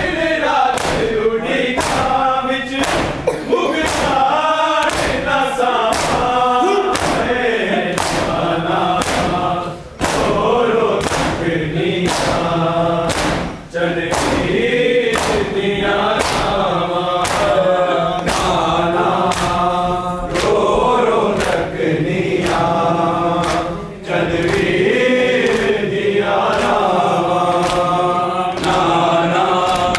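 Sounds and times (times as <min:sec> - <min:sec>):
men chanting in unison: 0:00.0 - 0:29.9
hands slapping bare chests: 0:00.7 - 0:01.2, 0:01.8 - 0:02.2, 0:02.8 - 0:03.2, 0:03.8 - 0:05.3, 0:05.9 - 0:08.4, 0:09.0 - 0:09.4, 0:10.0 - 0:10.4, 0:11.0 - 0:11.4, 0:12.0 - 0:15.5, 0:16.2 - 0:16.6, 0:17.2 - 0:17.6, 0:18.2 - 0:18.6, 0:19.2 - 0:19.6, 0:20.3 - 0:20.6, 0:21.3 - 0:21.7, 0:22.4 - 0:22.7, 0:23.3 - 0:24.8, 0:25.4 - 0:28.0, 0:28.6 - 0:29.0, 0:29.6 - 0:29.9.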